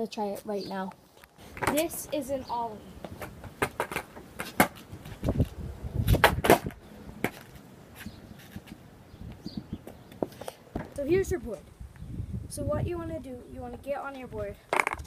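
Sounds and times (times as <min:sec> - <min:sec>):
skateboard thud: 0:01.6 - 0:01.9, 0:03.1 - 0:07.6
skateboard clacking on asphalt: 0:01.6 - 0:02.0, 0:03.1 - 0:08.8.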